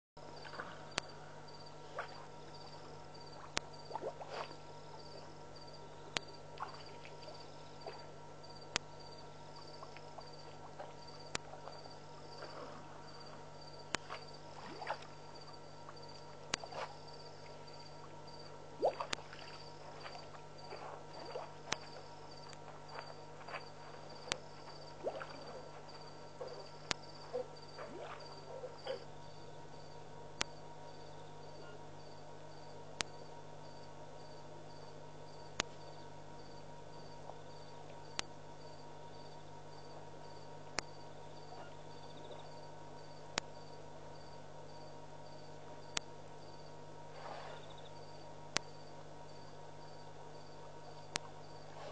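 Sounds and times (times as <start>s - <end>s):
insects trilling: 0.2s - 46.6s, 47.2s - 51.9s
low hum: 0.2s - 51.9s
water splashing: 14.0s - 15.2s, 18.8s - 29.0s.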